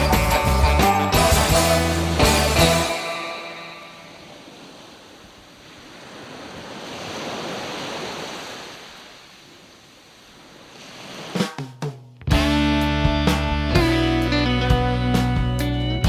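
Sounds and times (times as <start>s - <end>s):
rushing surf-like noise: 1.7s - 11.7s.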